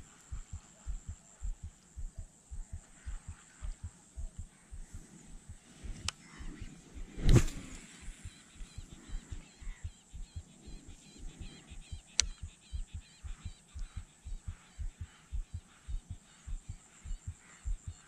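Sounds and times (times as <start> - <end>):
low even thumping: 0.3 - 18.0
sharp click: 7.2 - 7.8, 12.1 - 12.5.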